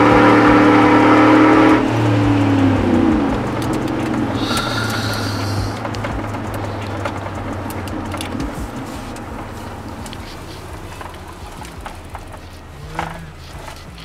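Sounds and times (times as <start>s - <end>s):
engine and road noise in cab: 0.0s - 14.0s
small clicks: 3.4s - 14.0s.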